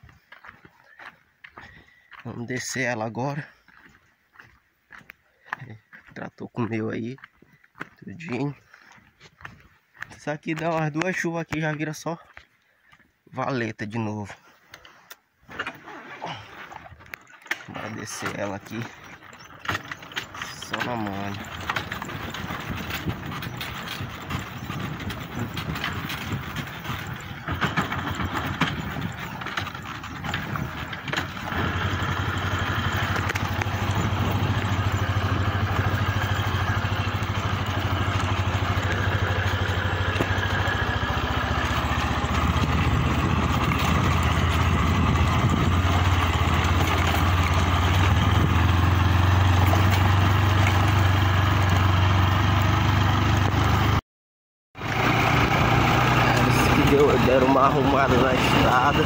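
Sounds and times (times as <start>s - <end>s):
rattling and knocks: 17.0s - 51.0s
truck engine running: 18.0s - 54.0s, 54.8s - 59.0s.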